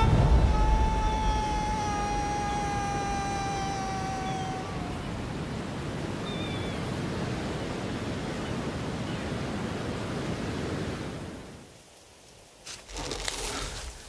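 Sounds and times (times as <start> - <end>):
held tone: 0.0 - 5.0
sea surf: 0.0 - 11.7
wind: 0.0 - 14.0.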